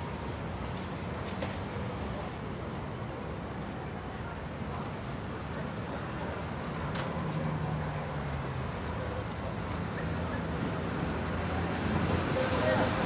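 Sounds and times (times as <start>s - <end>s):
passing vehicles: 0.0s - 13.0s.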